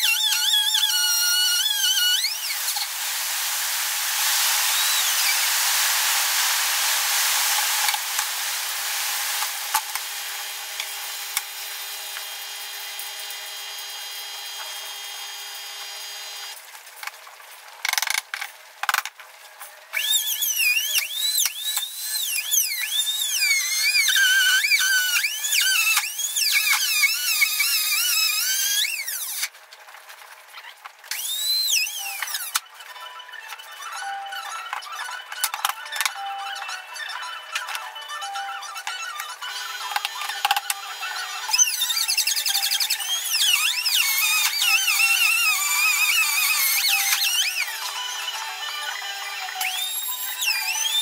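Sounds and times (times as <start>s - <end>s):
trim router whining: 0.0s - 16.5s, 20.0s - 29.5s, 31.1s - 32.6s, 38.8s - 51.0s.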